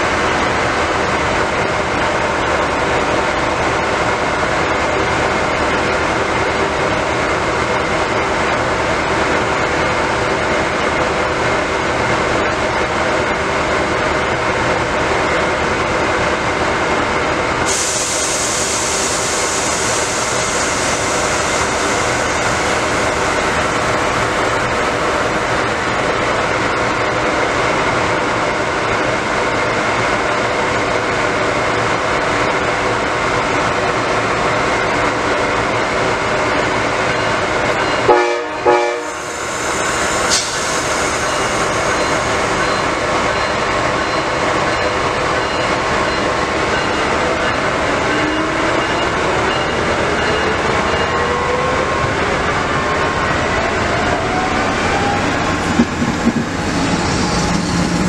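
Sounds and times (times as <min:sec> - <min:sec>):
train diesel engine drone: 0:00.0 - 0:58.0.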